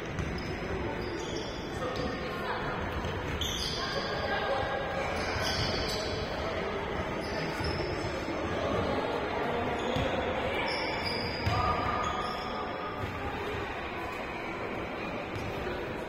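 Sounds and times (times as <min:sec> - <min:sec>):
voices mingling: 0:00.0 - 0:16.0
short squeaks: 0:00.4 - 0:02.0, 0:03.3 - 0:04.1, 0:05.2 - 0:06.2.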